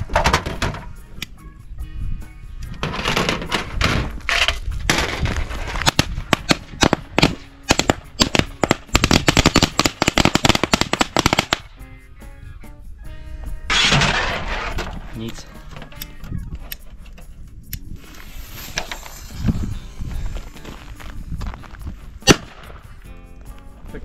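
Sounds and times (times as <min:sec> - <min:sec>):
firecrackers cracking: 0:04.8 - 0:11.7, 0:17.9 - 0:21.2, 0:22.2 - 0:22.9
fuse hiss: 0:17.8 - 0:22.2.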